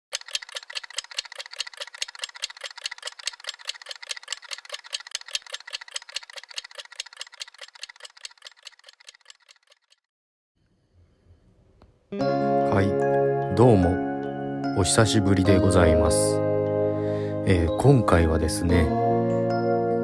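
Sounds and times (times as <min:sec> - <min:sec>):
rapid ringing clicks: 0:00.0 - 0:10.0.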